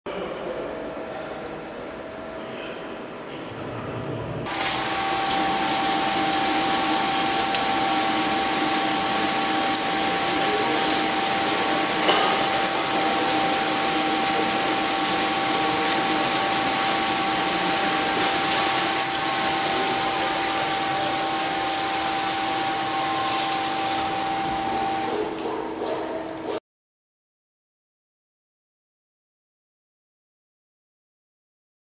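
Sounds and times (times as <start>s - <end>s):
coolant spray hissing: 4.5s - 25.5s
lathe machine whine: 4.5s - 25.5s.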